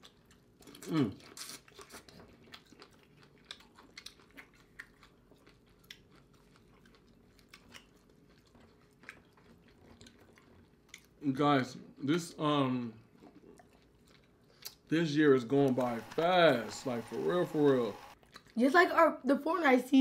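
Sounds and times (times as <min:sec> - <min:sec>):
close chewing and biting: 0:00.0 - 0:11.2, 0:13.0 - 0:14.9, 0:18.2 - 0:18.6.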